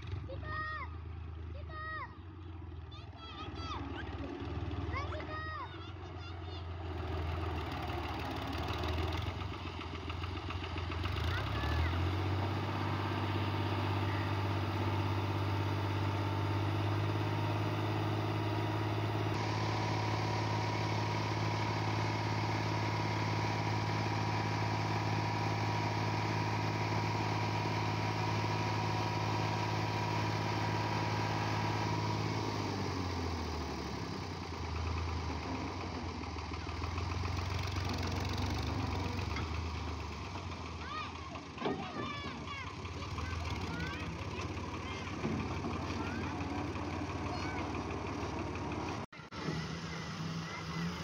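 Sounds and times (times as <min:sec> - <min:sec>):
tractor engine running: 0:00.0 - 0:51.0
hydraulic lift: 0:41.1 - 0:51.0.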